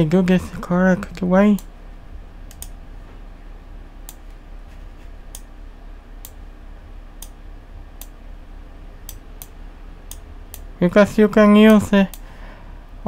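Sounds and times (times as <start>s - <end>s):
low steady hum: 0.0s - 13.0s
computer mouse clicking: 2.5s - 2.8s.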